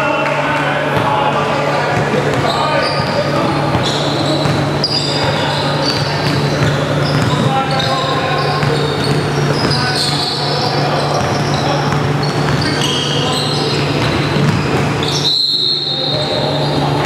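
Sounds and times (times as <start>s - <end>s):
sneakers squeaking: 0.9s - 17.0s
basketball bouncing on wooden floor: 1.9s - 7.5s, 11.1s - 12.9s, 13.9s - 15.0s.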